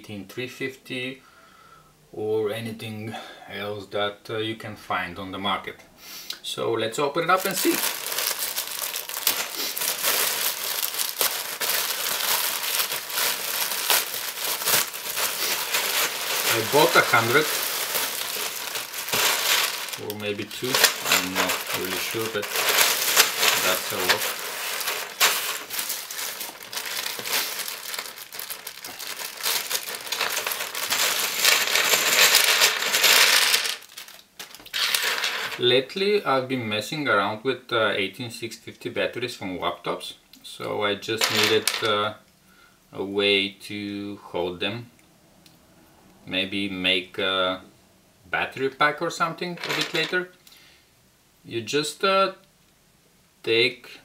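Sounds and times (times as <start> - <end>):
plastic bag crinkling and crackling: 7.3 - 35.6, 41.2 - 41.9, 49.6 - 50.2
small plastic parts rattling: 7.4 - 35.6, 41.2 - 41.9, 49.6 - 50.1.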